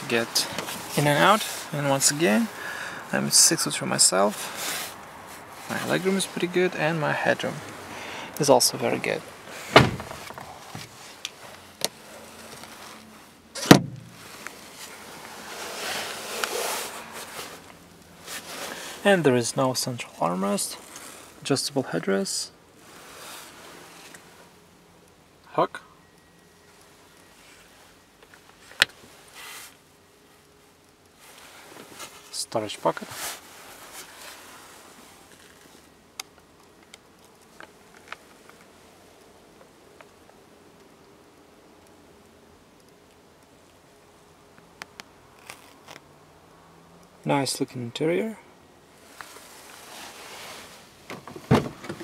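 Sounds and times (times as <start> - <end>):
rustling of movement: 0.0 - 21.5, 22.7 - 24.7, 26.6 - 40.4, 48.3 - 52.0
heavy thump: 9.7 - 10.4, 13.6 - 14.2.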